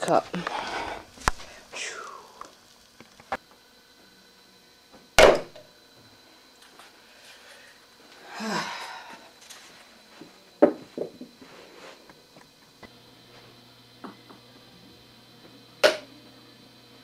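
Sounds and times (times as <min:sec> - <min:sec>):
soft breathy rush of noise: 0:00.4 - 0:02.5
loud sharp knock: 0:05.2 - 0:05.5.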